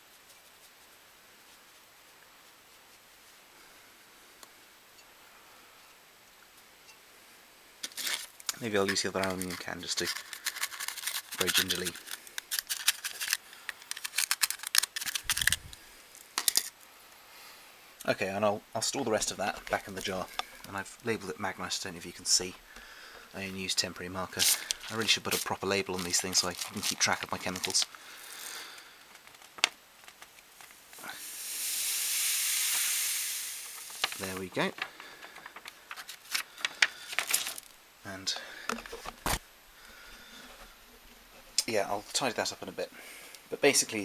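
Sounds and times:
powder sliding into glass jar: 0:31.0 - 0:34.4.

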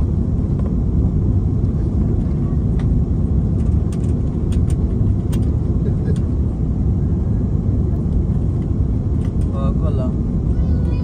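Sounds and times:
aircraft engine rumble in cabin: 0:00.0 - 0:11.0.

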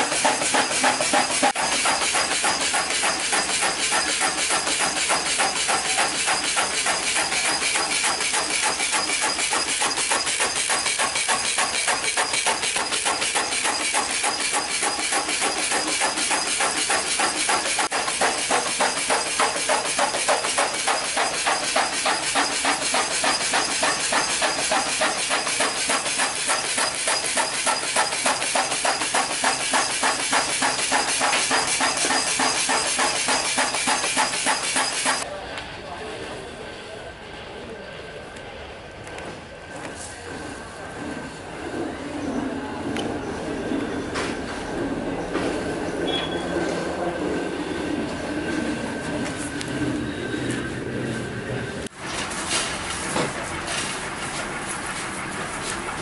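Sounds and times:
wood cutting machine clattering: 0:00.0 - 0:35.3.

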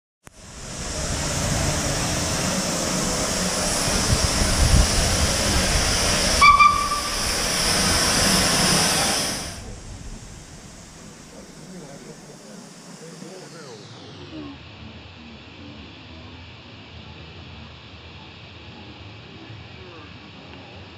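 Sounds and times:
steam hissing: 0:00.3 - 0:14.8
high steam whistle toot: 0:02.2 - 0:09.6.

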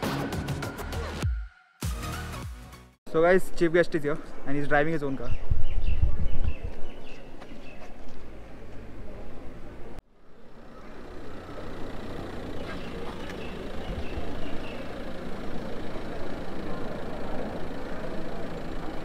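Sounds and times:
car engine running: 0:10.3 - 0:19.0.

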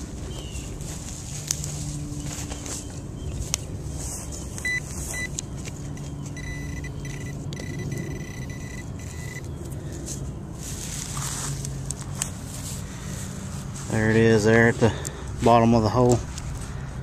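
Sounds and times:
low engine-like drone: 0:00.0 - 0:17.0
metal detector alert tone: 0:04.6 - 0:05.4, 0:06.0 - 0:09.5
metal detector beeps: 0:04.6 - 0:09.5.

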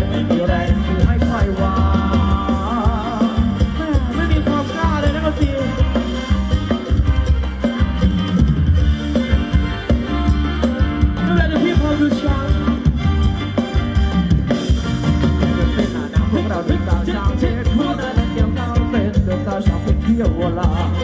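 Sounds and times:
person singing: 0:00.0 - 0:06.0, 0:15.4 - 0:21.0
live band playing dance music: 0:00.0 - 0:21.0
steady drum beat: 0:00.0 - 0:21.0.

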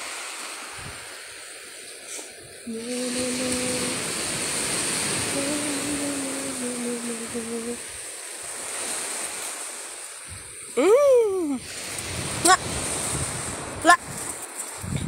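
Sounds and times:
surf washing up on beach: 0:00.0 - 0:15.0
person humming low note: 0:02.7 - 0:04.1, 0:05.3 - 0:07.8.

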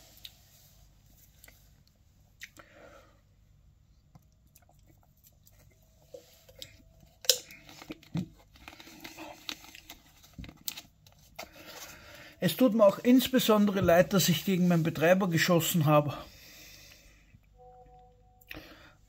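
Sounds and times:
chewing: 0:04.1 - 0:06.8
plastic bottle handling: 0:07.2 - 0:14.6.

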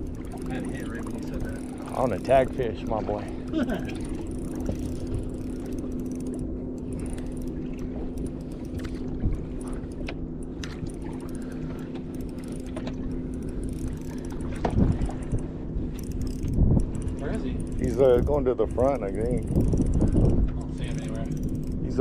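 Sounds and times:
boat motor humming: 0:00.0 - 0:22.0
fishing reel gears clicking: 0:00.0 - 0:22.0.

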